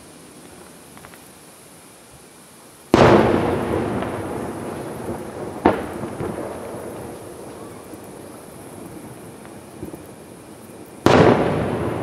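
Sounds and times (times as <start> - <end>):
sharp firework bang: 2.9 - 8.0, 11.0 - 12.0
firework boom with echo: 2.9 - 9.2, 11.0 - 12.0.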